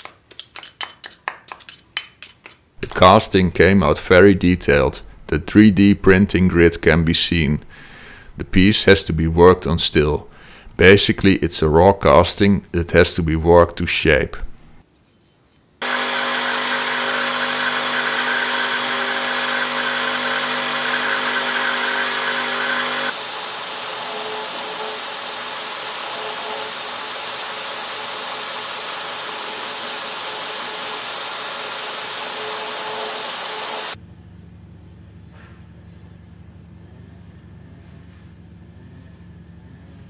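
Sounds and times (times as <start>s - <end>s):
belt grinder motor hum and whine: 15.8s - 34.0s
abrasive belt hissing on metal: 18.2s - 34.0s.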